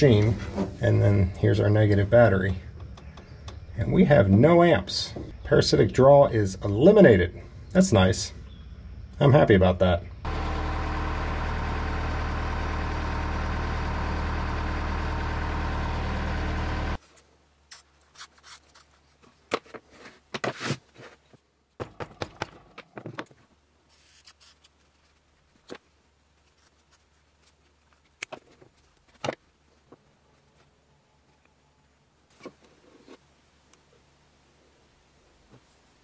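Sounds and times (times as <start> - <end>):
diesel engine idling: 10.2 - 17.0.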